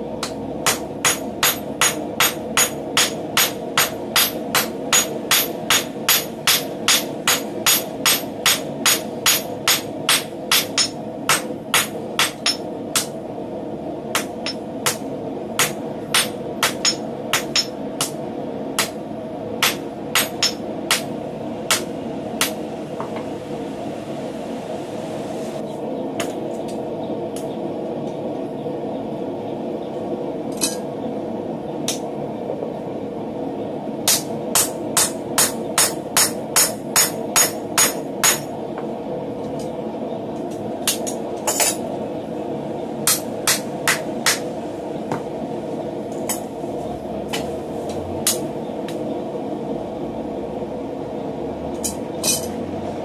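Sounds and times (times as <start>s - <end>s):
hammer striking hot steel bar: 0.2s - 13.2s, 14.1s - 18.2s, 18.8s - 19.0s, 19.6s - 21.1s, 21.7s - 22.6s, 34.0s - 38.5s, 43.0s - 44.4s.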